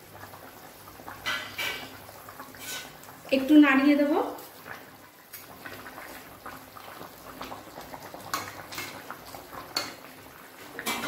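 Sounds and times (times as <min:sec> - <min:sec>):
curry bubbling: 0:00.0 - 0:11.0
spatula stirring in pan: 0:02.4 - 0:03.1.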